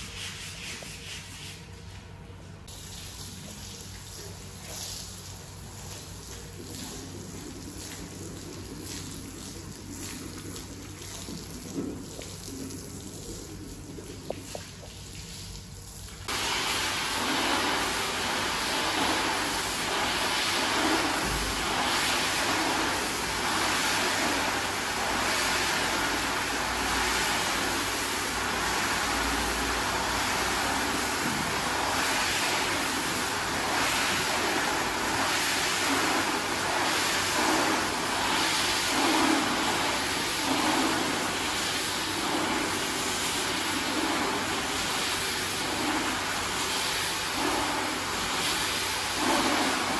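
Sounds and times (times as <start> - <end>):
wet hissing scrubbing: 16.2 - 49.9.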